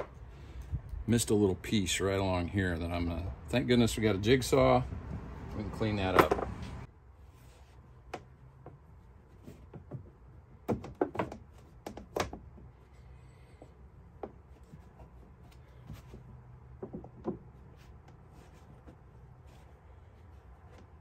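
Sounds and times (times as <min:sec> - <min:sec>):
flooring planks knocking and clicking: 0:09.4 - 0:12.8, 0:15.8 - 0:17.9.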